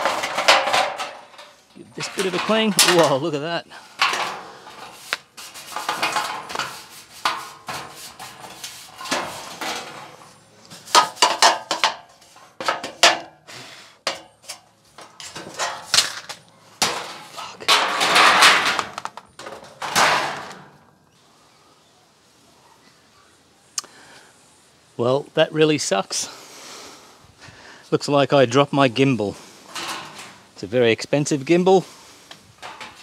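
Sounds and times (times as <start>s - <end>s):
brush scrubbing sheet metal: 0.0s - 3.4s, 4.0s - 13.3s
metal panel rattling and clanking: 0.0s - 5.0s, 5.6s - 13.4s, 14.1s - 20.8s, 29.7s - 30.5s, 32.6s - 33.0s.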